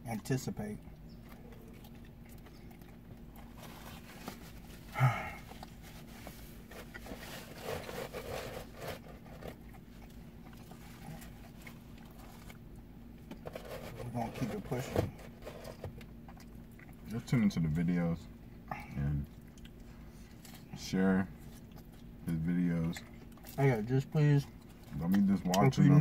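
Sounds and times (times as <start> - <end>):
faint steady hum: 0.0 - 26.0
chewing and mouth noises: 0.8 - 13.5, 15.6 - 17.8, 18.5 - 26.0
paper napkin rustling: 5.7 - 9.6.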